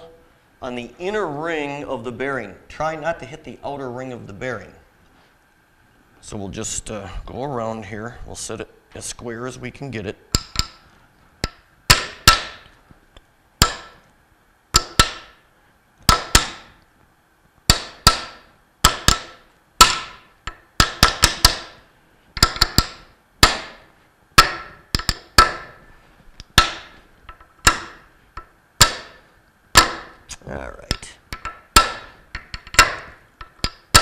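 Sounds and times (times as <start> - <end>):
hammer tapping on metal: 10.3 - 12.8, 13.6 - 14.1, 14.8 - 15.4, 16.1 - 16.7, 17.7 - 21.8, 22.4 - 25.8, 26.5 - 29.2, 29.8 - 30.2, 30.9 - 34.0.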